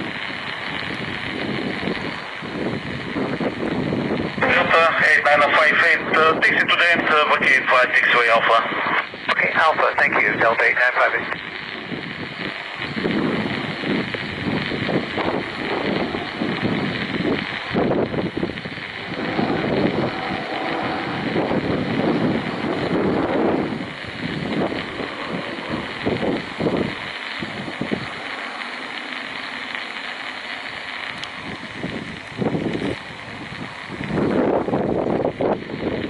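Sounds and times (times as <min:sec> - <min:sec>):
wind buffeting microphone: 0:00.0 - 0:10.6, 0:11.2 - 0:36.0
distant jet engines hissing: 0:00.0 - 0:36.0.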